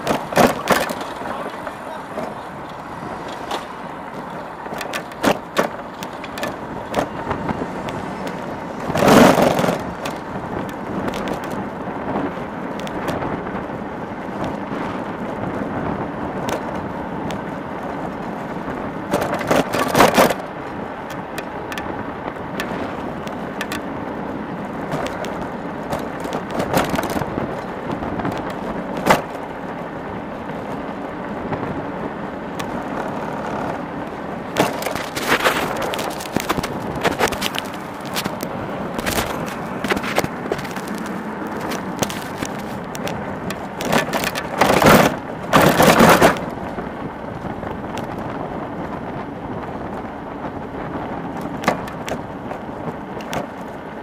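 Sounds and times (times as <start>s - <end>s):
rattles and clicks: 0.0s - 11.7s, 19.0s - 23.9s, 24.8s - 29.5s, 32.5s - 46.8s, 51.3s - 53.8s
road rolling rush: 0.0s - 54.0s.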